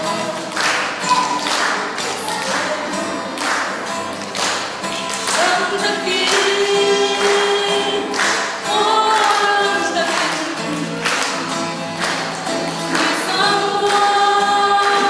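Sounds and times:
strummed acoustic guitar: 0.0 - 15.0
women singing a duet: 5.3 - 10.6, 12.9 - 15.0.

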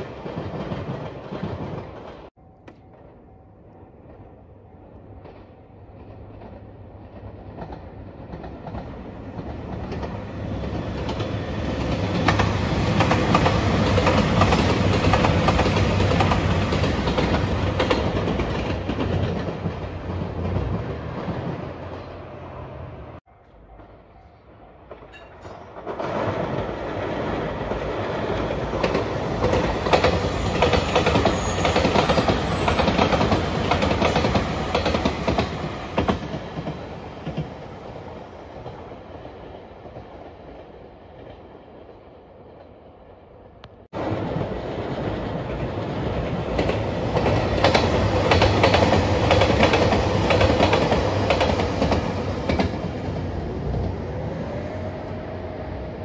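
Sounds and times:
diesel train rolling past: 0.0 - 56.0
train wheels clicking over rail joints: 5.2 - 22.1, 23.5 - 37.7, 45.2 - 53.9.

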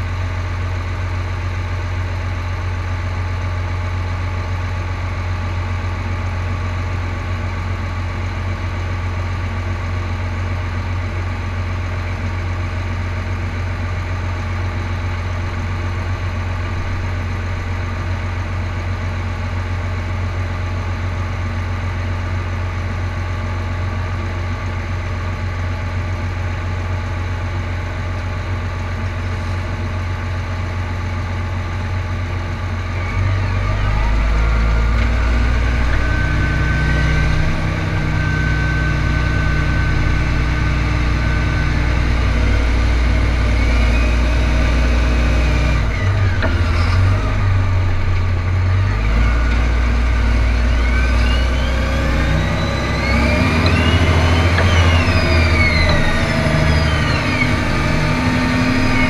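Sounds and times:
tractor diesel engine: 0.0 - 59.0
high steady whine: 29.0 - 59.0.

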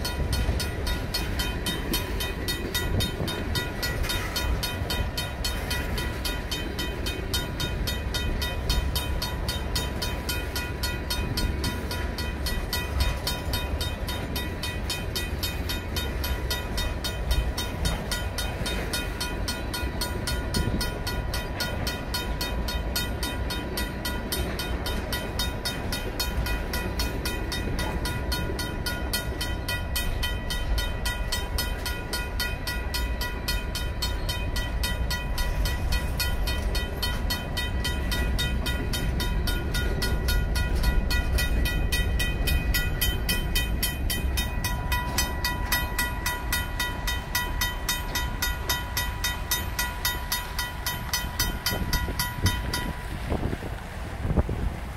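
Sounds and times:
mechanical crossing bell ringing: 0.0 - 53.1
freight train rumbling on rails: 0.0 - 54.9.

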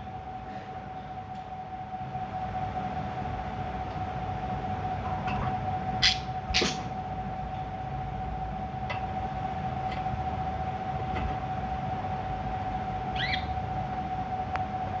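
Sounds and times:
steady hum: 0.0 - 15.0
budgerigar chirp: 13.2 - 13.5.

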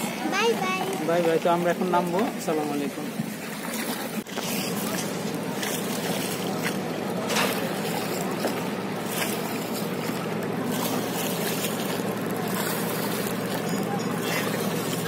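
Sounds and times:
river water rushing: 0.0 - 15.0
wind: 0.0 - 15.0.

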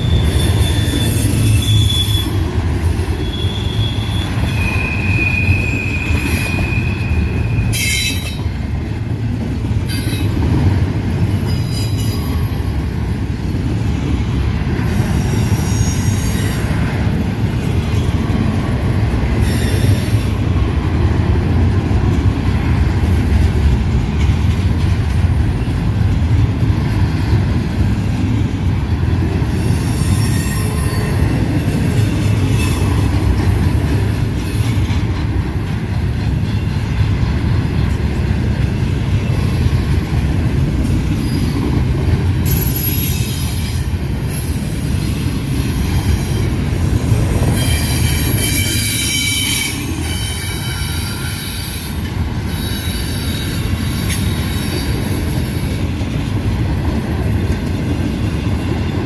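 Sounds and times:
high wheel squeal: 0.0 - 2.4, 3.2 - 8.6, 9.9 - 13.3, 19.4 - 20.3, 29.6 - 31.3, 42.4 - 46.5, 47.5 - 55.7
train wheels rumbling on rails: 0.0 - 59.0.

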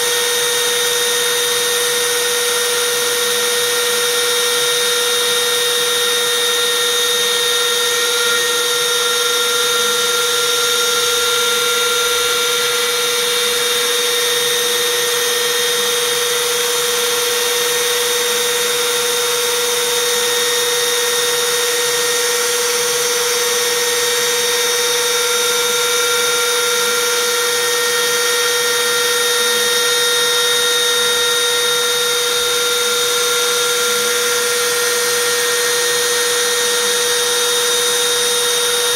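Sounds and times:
router spindle motor whining: 0.0 - 38.9.

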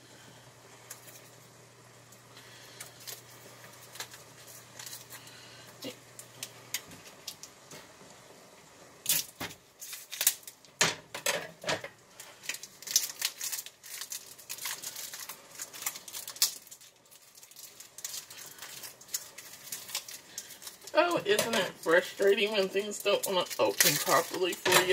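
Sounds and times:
plastic wrapper crinkling and tearing: 0.9 - 1.4, 2.1 - 7.7, 9.0 - 24.9.

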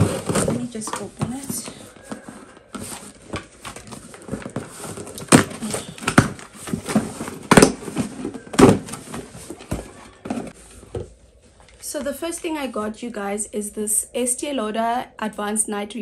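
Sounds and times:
packaging rustling and tearing: 0.0 - 10.6.

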